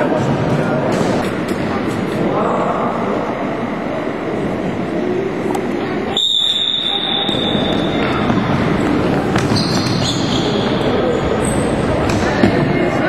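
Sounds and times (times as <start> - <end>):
long high whistle blast: 6.1 - 8.0.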